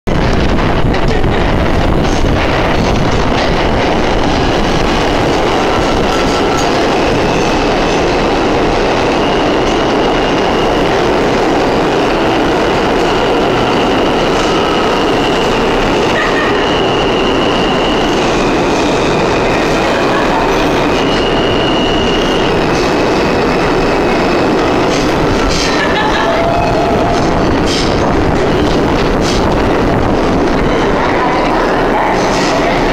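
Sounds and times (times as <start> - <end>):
subway train wheels rumbling: 0.0 - 32.9
high squealing tones: 4.0 - 28.9.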